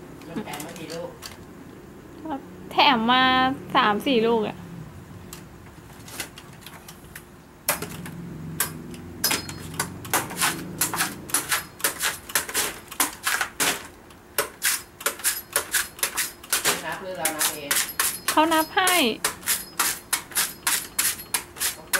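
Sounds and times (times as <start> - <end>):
knife chopping coconut husk: 10.1 - 13.8, 14.4 - 21.9.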